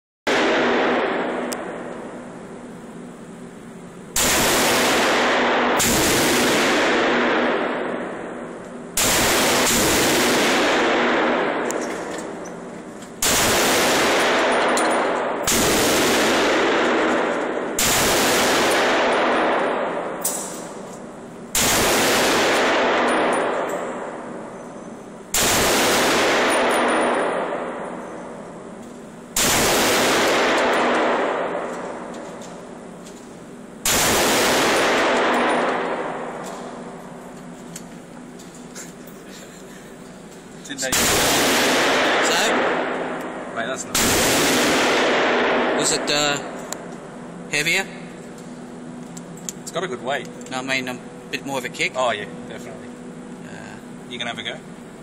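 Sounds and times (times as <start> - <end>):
pistol shots echoing: 0.3 - 2.0, 4.1 - 12.5, 13.2 - 20.9, 21.5 - 24.6, 25.3 - 32.8, 33.8 - 37.2, 40.8 - 47.2.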